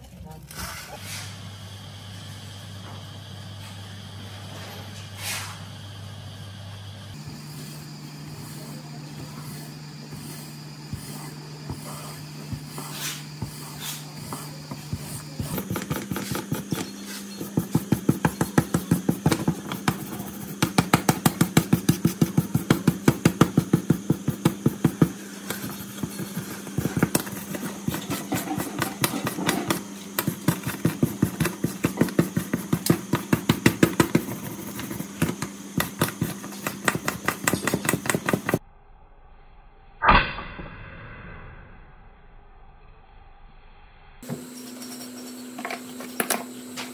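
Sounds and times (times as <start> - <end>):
steady low hum: 0.0 - 40.0
wire brush scrubbing metal: 7.2 - 23.7, 24.3 - 38.6.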